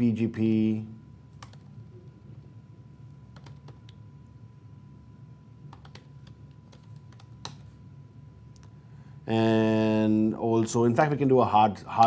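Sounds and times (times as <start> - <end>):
faint low hum: 0.0 - 12.0
computer keyboard typing: 1.4 - 1.7, 3.3 - 4.0, 5.7 - 7.7.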